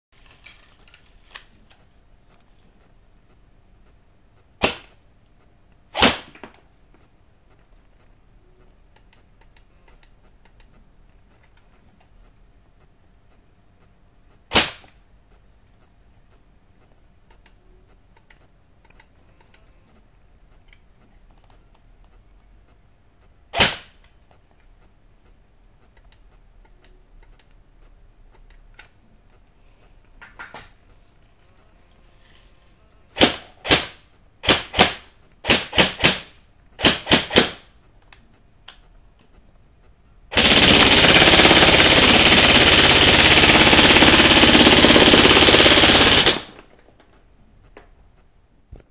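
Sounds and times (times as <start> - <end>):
airsoft gun firing bursts: 5.9 - 6.4, 23.5 - 24.0, 33.2 - 37.7, 40.3 - 46.7.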